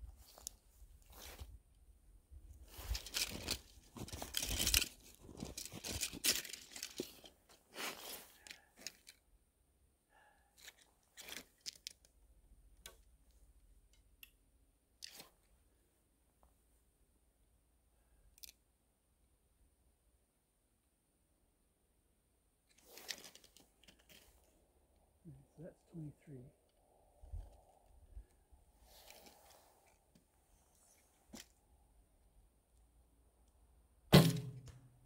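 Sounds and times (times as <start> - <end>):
faint clicks of bow handling: 0.2 - 1.8, 2.6 - 9.3, 10.4 - 14.4, 15.0 - 15.6, 18.3 - 18.6, 22.7 - 25.1, 25.9 - 31.6
jacket rustling: 2.6 - 9.1.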